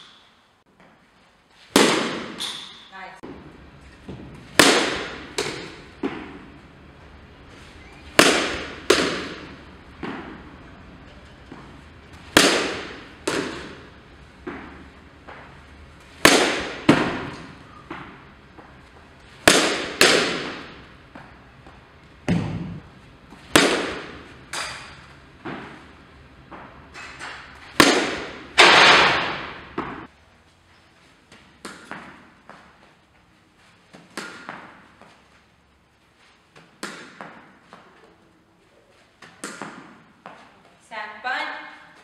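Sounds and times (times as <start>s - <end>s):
softball bat cracks: 1.7s - 2.9s, 4.1s - 6.4s, 8.1s - 10.4s, 12.2s - 15.5s, 16.1s - 18.2s, 19.4s - 21.3s, 22.2s - 25.9s, 27.2s - 30.1s, 34.0s - 34.8s, 36.8s - 37.6s, 39.2s - 40.0s
sharp echoing impacts: 4.0s - 6.6s, 8.1s - 10.6s, 12.2s - 18.4s, 19.4s - 21.0s, 22.2s - 26.0s, 27.7s - 30.1s.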